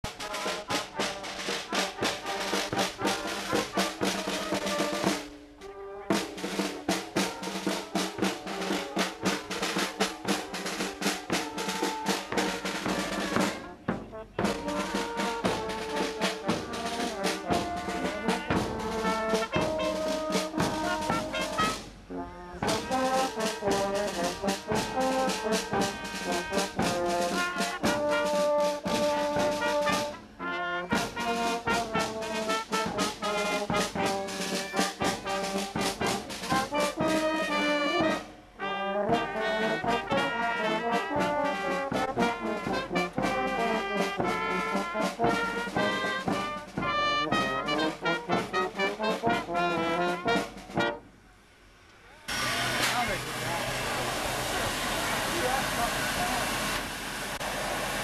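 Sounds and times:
steady drum beat: 0.0s - 5.4s, 6.1s - 51.0s
trumpets and trombones: 0.0s - 51.2s.

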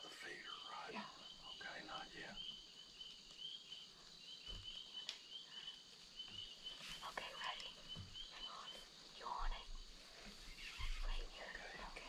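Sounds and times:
faint whispering: 0.0s - 2.4s, 6.8s - 12.0s
faint click: 5.0s - 5.3s, 7.4s - 7.8s
small animal chirping: 10.5s - 11.8s.

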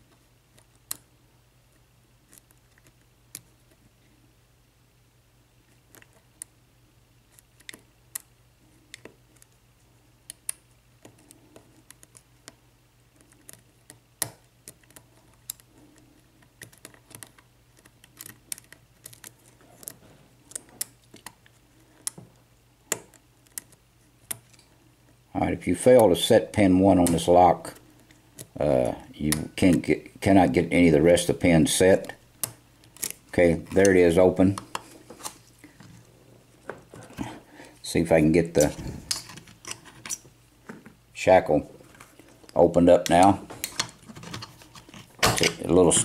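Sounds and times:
lock pick clicking and scraping: 13.2s - 22.2s, 32.4s - 33.2s.

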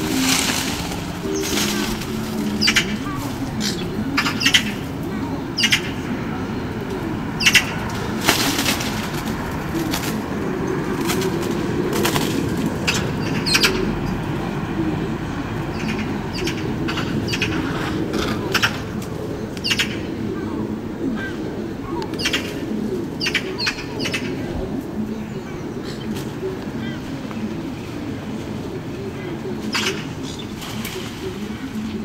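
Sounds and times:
wings flapping: 0.0s - 14.9s, 15.8s - 20.3s, 25.9s - 32.0s
birds chirping: 0.0s - 32.0s.

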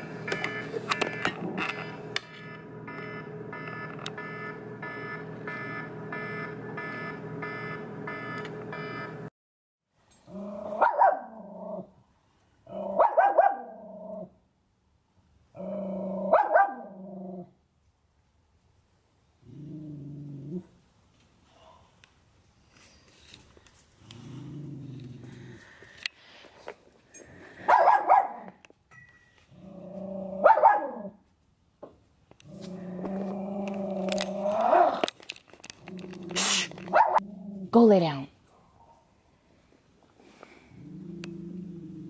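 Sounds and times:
dogs barking: 10.8s - 11.3s, 12.9s - 13.8s, 16.3s - 16.9s, 27.6s - 28.5s, 30.4s - 31.1s, 36.9s - 37.2s.

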